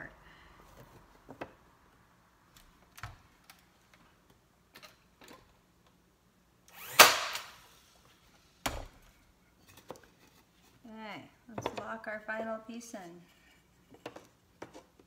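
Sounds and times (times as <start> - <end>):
nail gun firing: 6.7 - 7.6.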